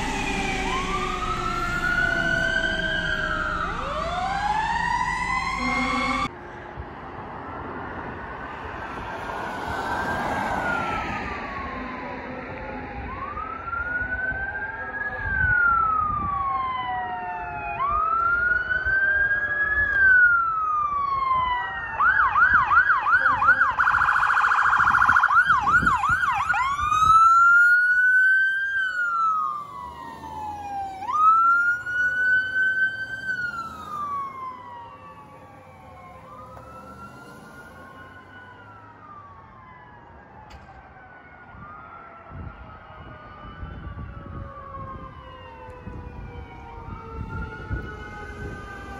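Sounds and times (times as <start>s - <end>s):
emergency sirens wailing: 0.0s - 48.9s.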